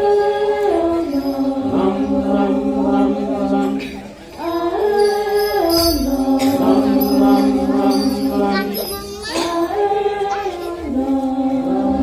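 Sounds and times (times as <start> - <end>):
sharp percussion strokes: 4.4 - 9.9.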